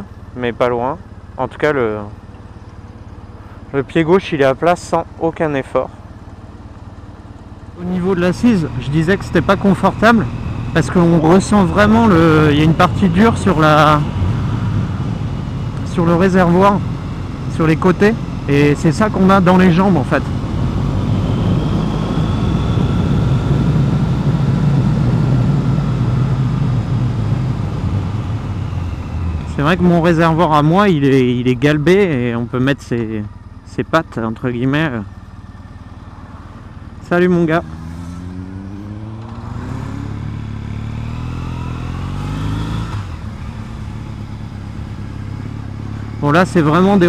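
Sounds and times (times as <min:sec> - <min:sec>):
motorcycle engine cruising: 0:00.0 - 0:47.0.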